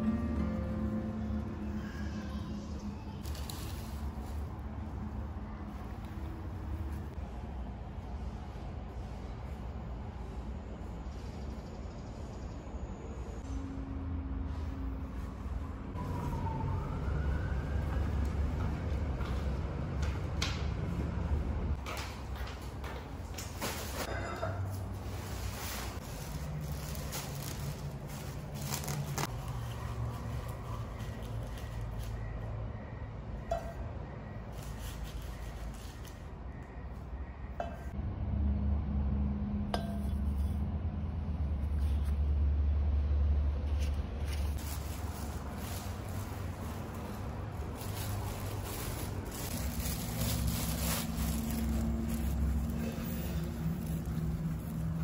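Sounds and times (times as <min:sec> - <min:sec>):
low outdoor rumble: 0:00.0 - 0:21.8, 0:24.4 - 0:55.0.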